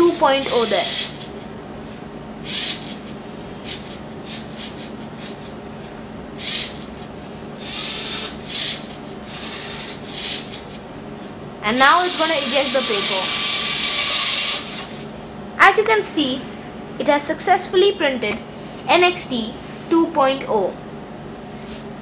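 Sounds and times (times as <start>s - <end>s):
faint motor hum: 0.0s - 22.0s
pen scratching on paper: 12.0s - 14.8s.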